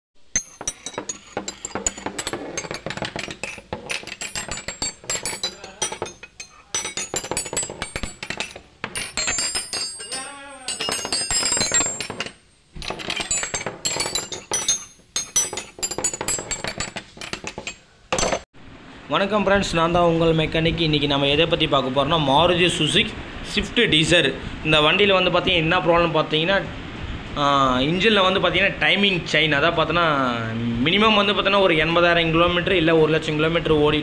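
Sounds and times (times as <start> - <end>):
metallic clanking and ratcheting: 0.4 - 18.5.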